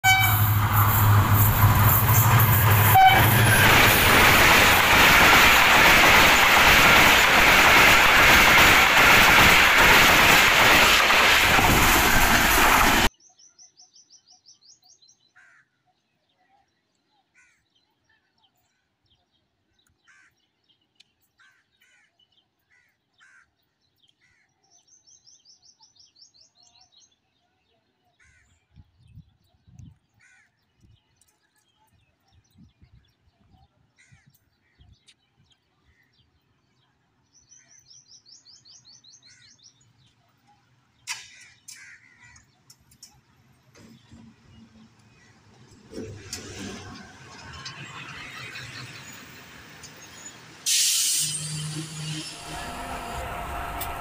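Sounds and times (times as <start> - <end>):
passenger train rushing past: 0.0 - 13.1, 43.8 - 54.0
single click: 41.1 - 41.8
low engine drone: 51.1 - 54.0.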